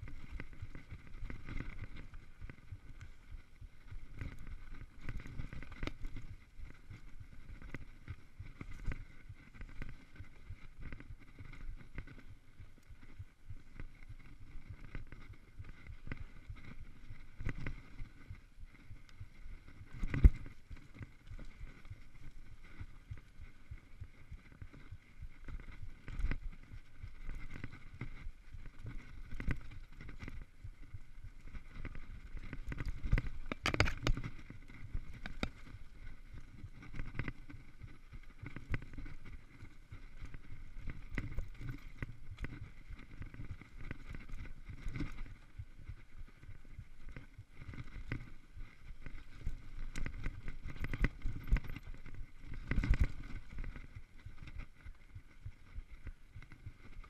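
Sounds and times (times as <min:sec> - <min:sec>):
bike rattling and knocking: 0:32.4 - 0:36.0.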